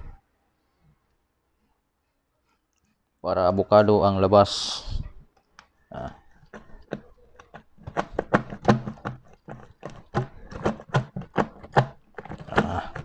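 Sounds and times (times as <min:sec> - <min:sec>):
metal canister knocking in ice: 0:06.6 - 0:13.0.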